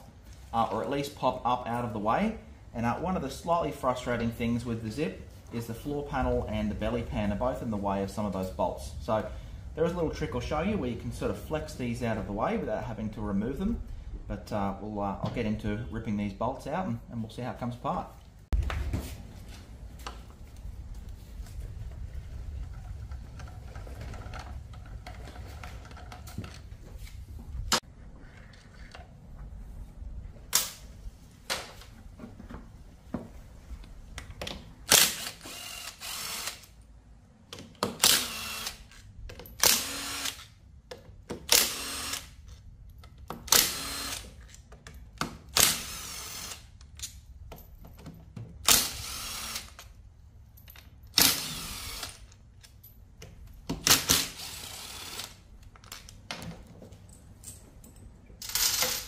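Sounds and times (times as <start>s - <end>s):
cordless power driver running: 43.6s - 44.2s.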